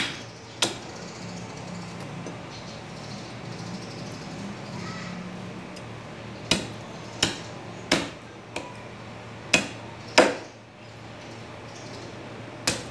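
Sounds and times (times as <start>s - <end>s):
machete chopping on wooden block: 0.0s - 0.8s, 6.5s - 8.7s, 9.5s - 10.5s, 12.6s - 12.9s.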